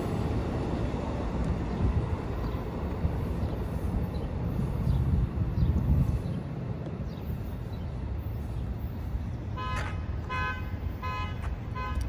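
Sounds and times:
train rumbling away: 0.0 - 12.0
distant train horn toots: 9.5 - 12.0.

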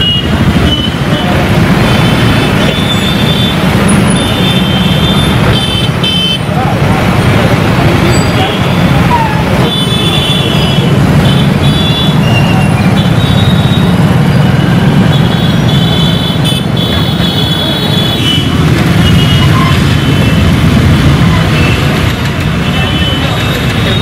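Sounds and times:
car horns blasting: 0.0 - 1.1, 1.8 - 6.5, 9.6 - 13.8, 14.8 - 20.5
car and motorbike engines idling: 0.0 - 24.0.

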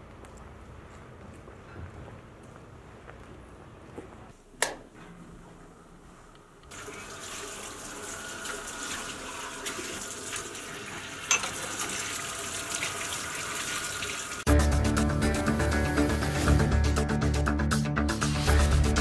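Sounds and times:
tap water running into sink: 6.7 - 14.5
dishes clinking: 11.3 - 11.8
music: 14.5 - 19.0.

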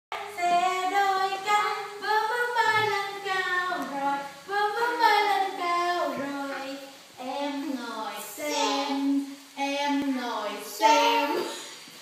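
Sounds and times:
child singing long notes: 0.2 - 9.3.

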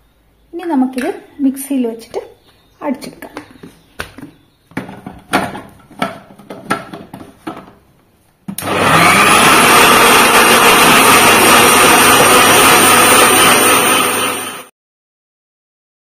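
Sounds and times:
mixer grinder motor running: 8.6 - 14.7.

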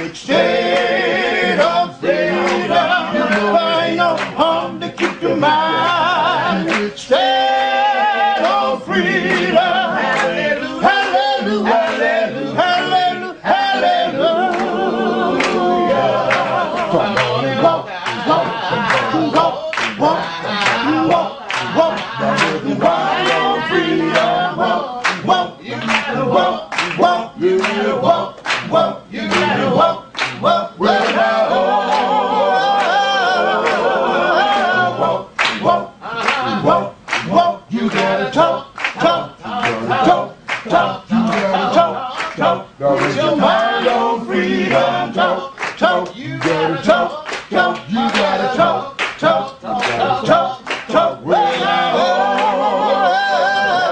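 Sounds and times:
group singing a cappella: 0.0 - 53.9
hand claps beat: 2.4 - 5.4, 6.6 - 6.9, 8.4 - 11.2, 14.4 - 14.8, 15.4 - 15.7, 16.3 - 24.4, 25.0 - 31.3, 33.6 - 33.9, 35.4 - 44.0, 44.7 - 51.7.

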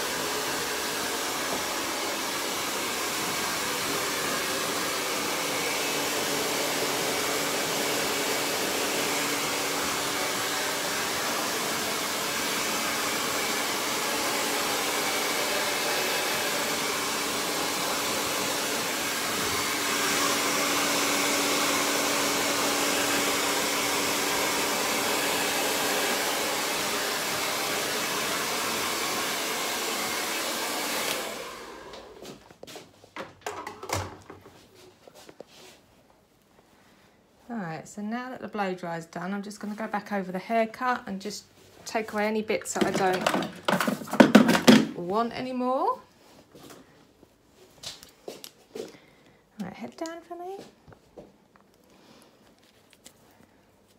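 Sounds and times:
hair dryer blowing: 0.0 - 32.8, 39.6 - 46.8.

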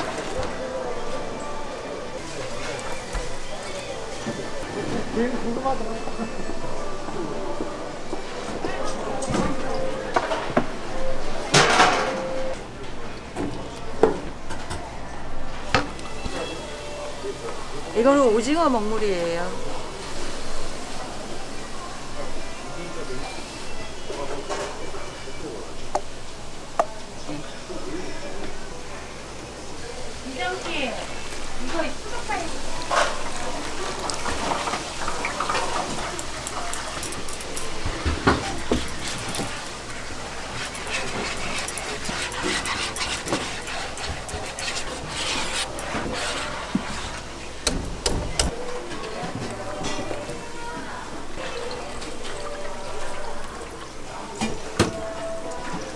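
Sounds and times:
utensils and dishes clinking: 0.0 - 22.2, 30.5 - 55.9
kitchen clatter: 11.5 - 12.5, 32.8 - 52.5.

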